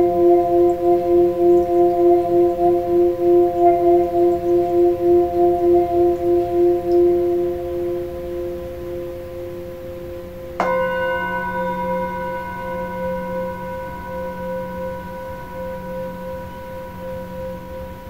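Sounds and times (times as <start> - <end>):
singing bowl humming: 0.0 - 18.0
singing bowl struck with mallet: 10.6 - 18.0.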